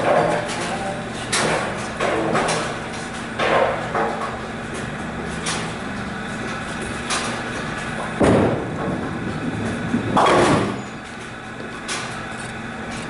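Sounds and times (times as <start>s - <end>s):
bowling ball rolling: 7.9s - 11.0s
bowling pins crashing: 8.0s - 11.0s.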